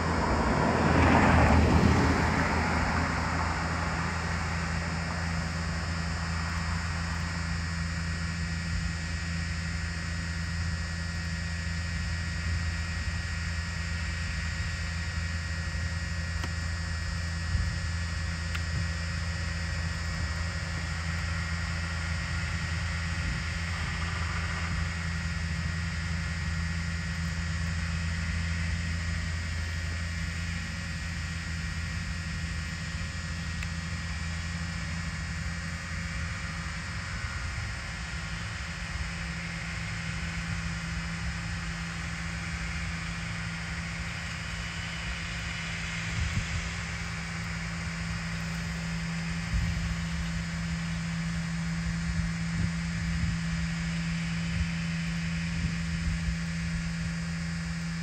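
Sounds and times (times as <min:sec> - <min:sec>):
drone propellers buzzing: 0:00.0 - 0:58.0.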